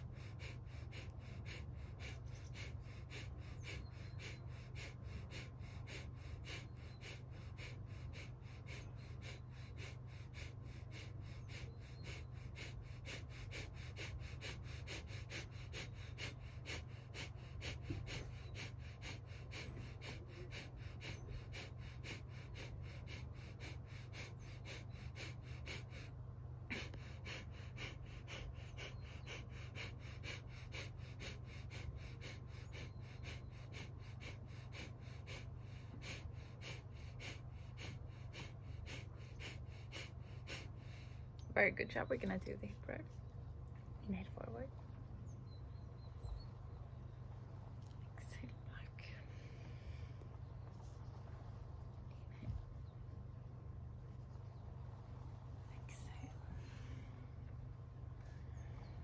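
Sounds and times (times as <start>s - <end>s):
rapid forceful exhalations: 26.7s - 41.3s.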